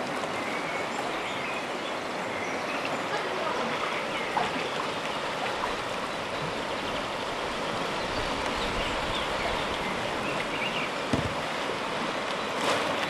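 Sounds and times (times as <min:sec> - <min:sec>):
river rapids rushing over stones: 0:00.0 - 0:13.0
knock: 0:11.1 - 0:11.4.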